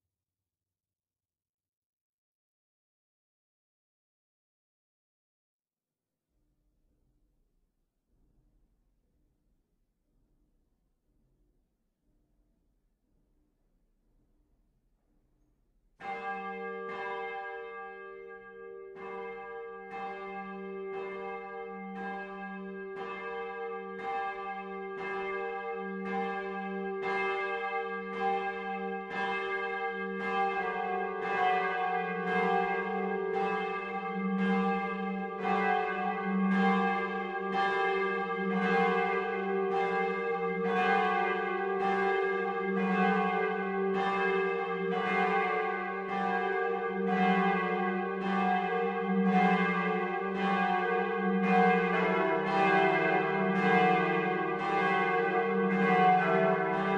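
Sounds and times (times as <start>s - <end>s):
cathedral bell ringing: 16.0s - 56.9s.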